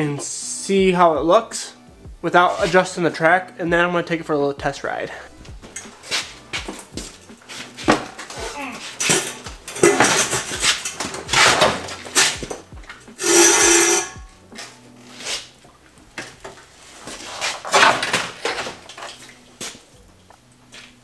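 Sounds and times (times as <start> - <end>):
metal clanks and scrapes: 5.7 - 15.5, 16.5 - 19.4.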